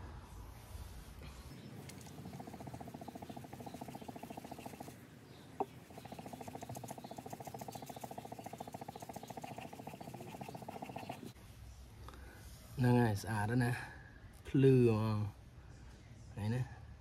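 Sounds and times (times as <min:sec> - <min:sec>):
blade scraping on whetstone: 0:01.9 - 0:04.9, 0:05.6 - 0:11.4.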